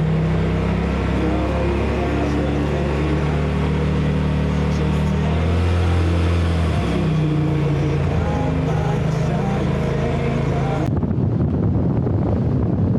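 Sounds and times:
off-road vehicle engine droning: 0.0 - 12.9.

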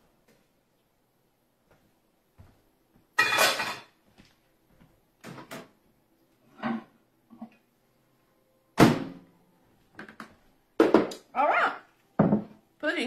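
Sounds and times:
metal pan clattering in sink: 3.2 - 4.0.

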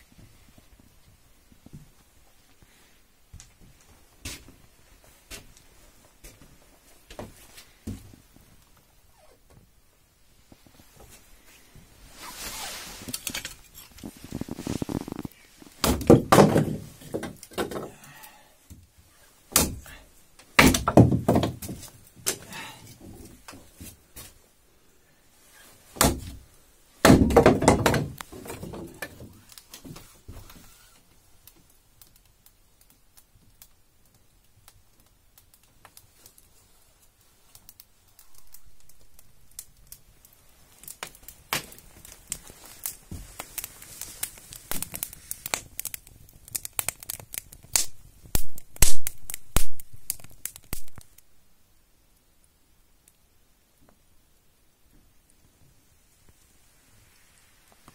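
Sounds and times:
fire crackling in stove: 0.0 - 57.9
wood clattering: 13.1 - 18.0, 20.5 - 23.6, 27.0 - 30.0
hatchet striking wood: 19.6 - 19.8, 20.6 - 21.6.

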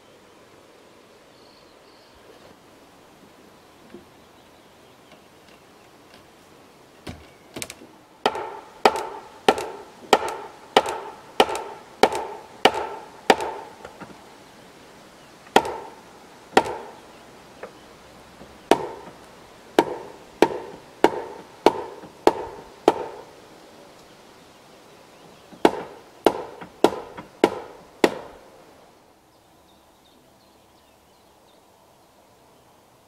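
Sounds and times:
blows knocking into timber joint: 7.0 - 14.2, 15.5 - 16.0, 16.6 - 17.0, 18.4 - 23.3, 25.5 - 28.4.

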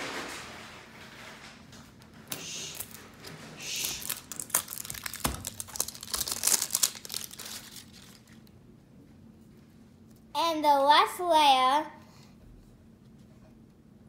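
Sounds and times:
plastic wrapping crinkling: 2.7 - 8.5.

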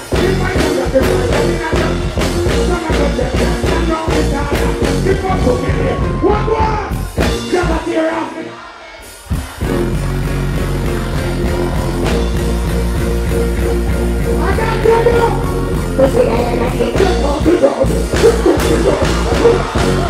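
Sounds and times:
vocalist on microphone: 0.0 - 9.6, 14.2 - 20.0
dancehall music with steady beat: 0.0 - 20.0.

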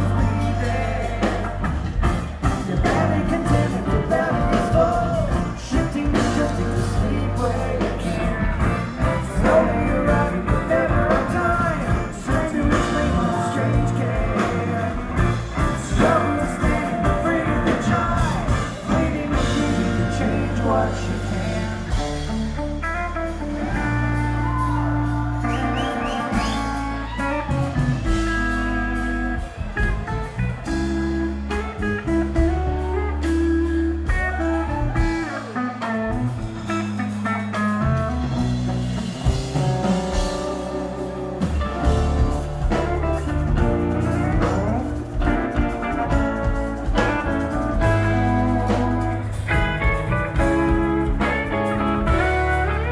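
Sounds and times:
electric guitar lines with bends: 0.0 - 52.9
live rock band playing: 0.0 - 52.9.

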